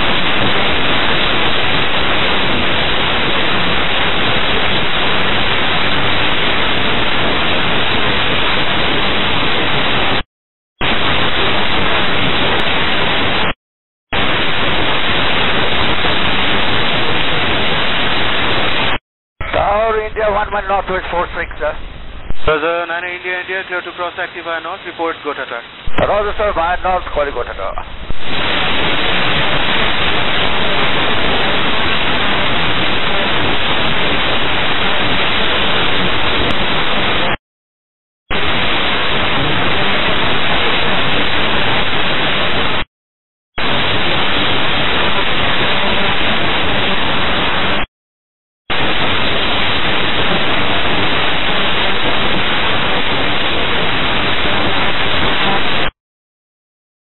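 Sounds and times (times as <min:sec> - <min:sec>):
radio static hiss: 0:10.8 - 0:37.4, 0:38.3 - 0:42.8, 0:43.6 - 0:47.9, 0:48.7 - 0:55.9.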